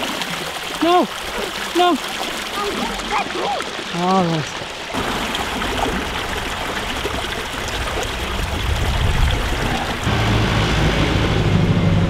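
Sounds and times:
stream splashing over stones: 0.0s - 10.7s
tractor engine running: 10.0s - 12.0s.

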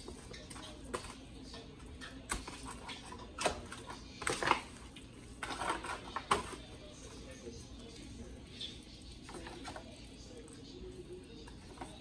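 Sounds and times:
aluminium foil pan crinkling: 0.0s - 7.0s.

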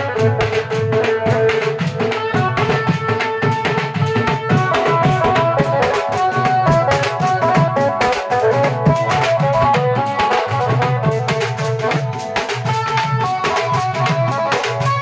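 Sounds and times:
keyboard melody: 0.0s - 15.0s.

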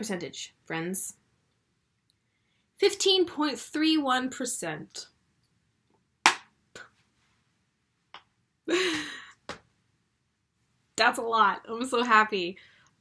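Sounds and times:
sharp slap: 6.3s - 6.5s.

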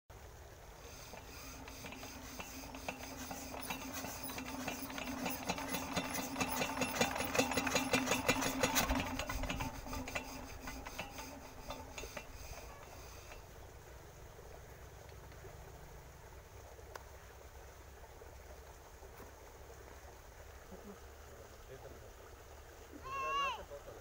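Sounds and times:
diesel engine cranked by hand: 0.7s - 15.8s.

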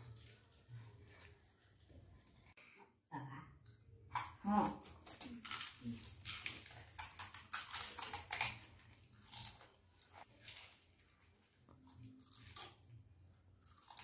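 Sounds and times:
crisp food crunching: 4.1s - 14.0s.

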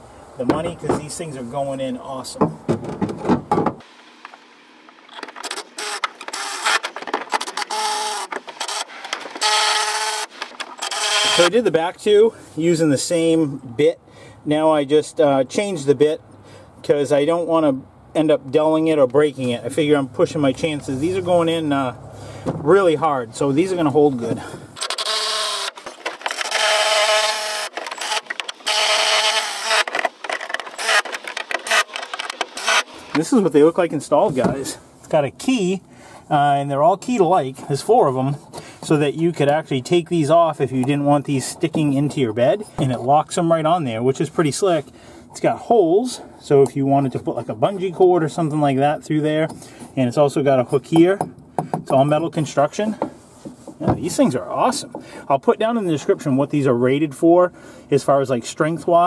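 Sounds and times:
cordless drill whining: 5.1s - 11.5s, 24.8s - 33.2s.

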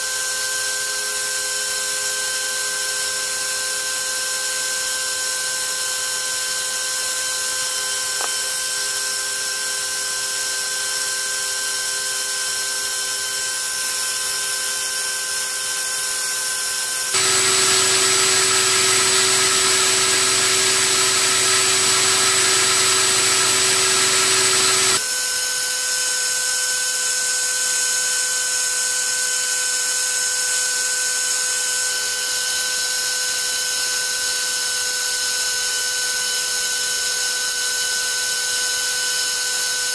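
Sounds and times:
electric motor and propeller whine: 4.6s - 13.7s, 17.1s - 25.2s.

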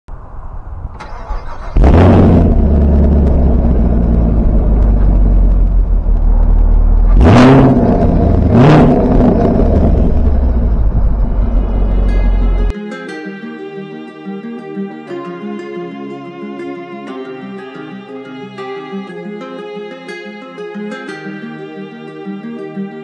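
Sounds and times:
car engine starting and idling: 0.8s - 12.7s
engine throttle blips: 1.0s - 12.7s.

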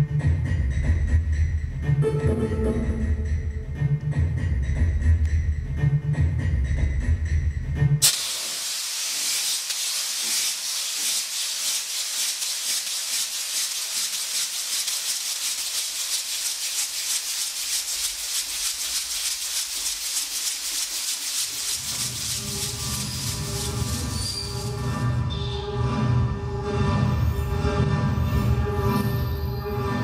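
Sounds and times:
high hiss with grainy rattle: 8.0s - 25.1s.

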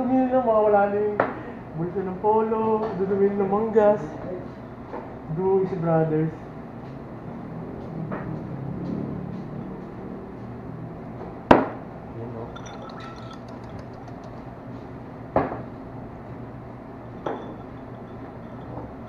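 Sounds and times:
glassware and dishes clinking: 12.4s - 14.4s, 17.1s - 19.0s.

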